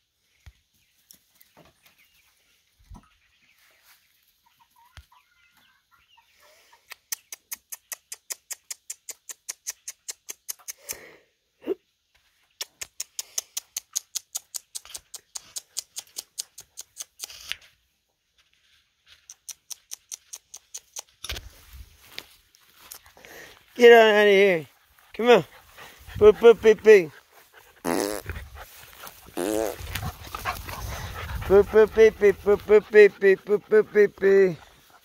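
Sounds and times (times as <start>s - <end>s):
hens clucking: 25.2s - 35.0s.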